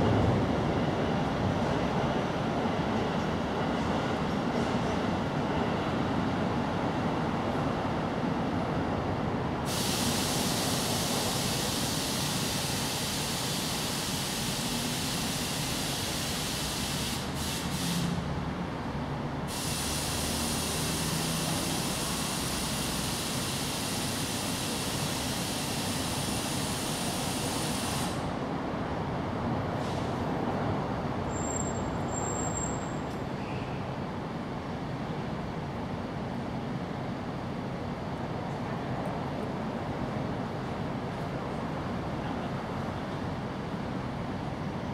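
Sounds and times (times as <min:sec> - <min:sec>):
loud high hiss: 0:09.7 - 0:18.2, 0:19.5 - 0:28.4.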